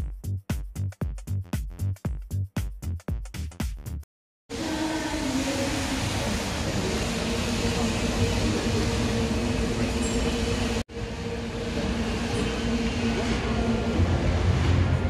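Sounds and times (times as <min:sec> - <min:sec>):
fountain water jets spraying: 0:04.6 - 0:08.8.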